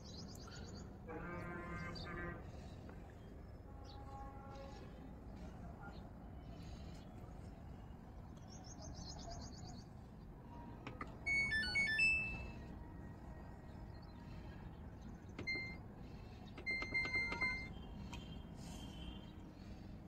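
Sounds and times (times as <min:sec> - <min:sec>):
control panel beeps: 0:10.9 - 0:12.6, 0:15.4 - 0:15.8, 0:16.6 - 0:17.8
electronic chime: 0:11.3 - 0:12.6.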